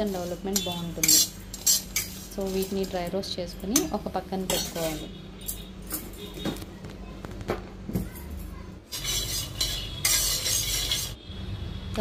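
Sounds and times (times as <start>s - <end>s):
metal pan and utensil clinks: 0.5s - 3.1s, 3.7s - 6.2s, 8.9s - 11.2s.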